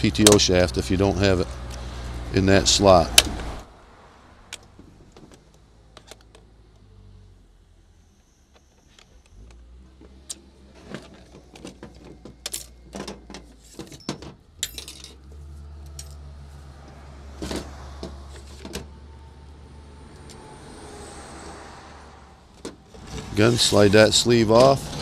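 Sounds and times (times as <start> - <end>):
plastic parts clicking and knocking: 4.5 - 6.5, 8.5 - 15.2.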